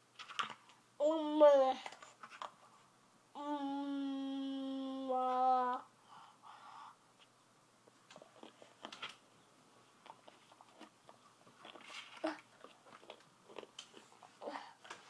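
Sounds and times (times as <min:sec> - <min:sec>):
toddler chewing crackers: 0:08.1 - 0:09.2, 0:10.0 - 0:15.0.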